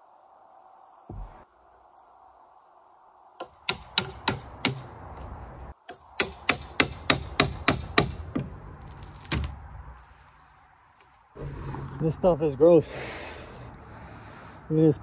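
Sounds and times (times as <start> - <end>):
hammer strikes: 3.4 - 5.0, 5.9 - 8.5.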